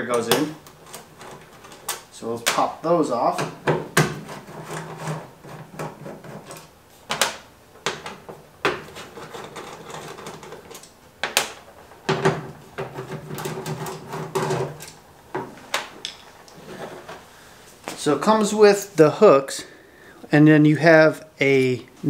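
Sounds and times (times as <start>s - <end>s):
screwdriver scraping: 4.2s - 6.7s, 8.8s - 10.9s.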